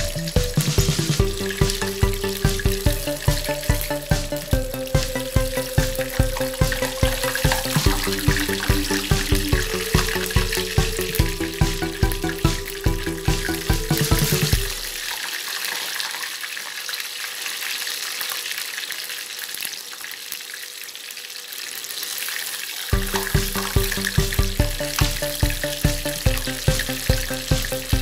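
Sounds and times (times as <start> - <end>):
background music with steady beat: 0.0 - 15.1, 22.9 - 28.0
chicken deep-frying in oil: 0.0 - 28.0.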